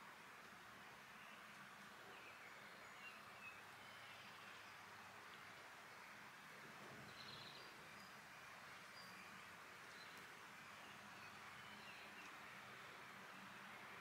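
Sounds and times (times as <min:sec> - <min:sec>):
faint outdoor hiss: 0:00.0 - 0:14.0
distant bird chirps: 0:07.0 - 0:12.5.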